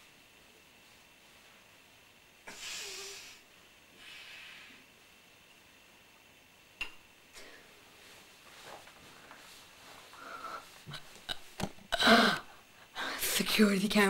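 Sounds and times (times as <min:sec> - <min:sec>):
faint scuffs and rustles: 0:07.8 - 0:10.9.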